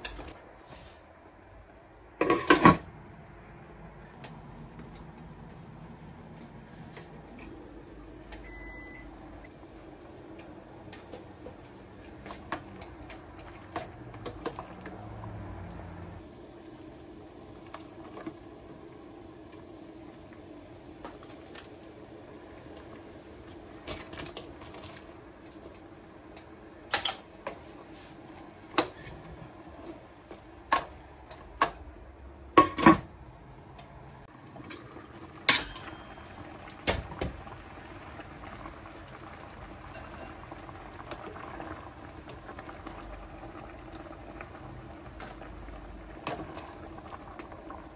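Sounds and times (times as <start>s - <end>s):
water boiling in pot: 3.6s - 33.0s, 34.2s - 47.9s
utensils clinking against pot: 35.5s - 36.2s, 39.9s - 40.4s.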